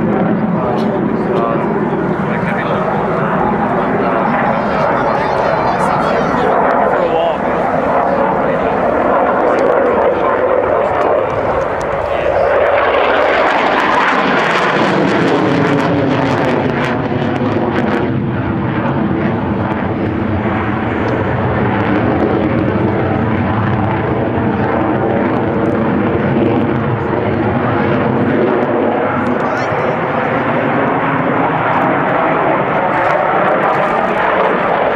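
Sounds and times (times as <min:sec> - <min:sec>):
loud jet engine roar: 0:00.0 - 0:34.9.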